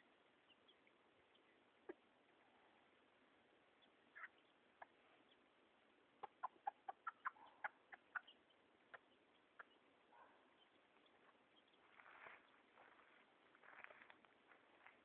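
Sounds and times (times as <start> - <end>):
hen clucking: 3.8 - 12.2
soft rustle: 10.9 - 15.0.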